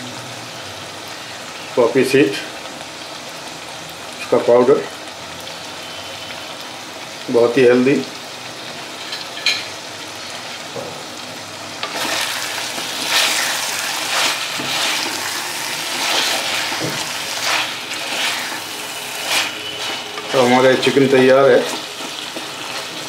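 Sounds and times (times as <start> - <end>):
food sizzling in a pot: 0.0 - 23.0
spoon scraping pot: 11.8 - 23.0.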